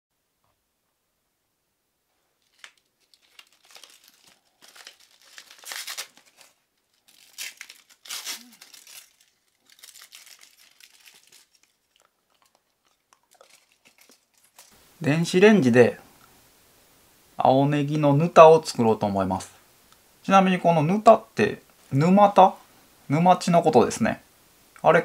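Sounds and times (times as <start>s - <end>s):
rustling and crinkling handling noise: 2.1s - 15.0s.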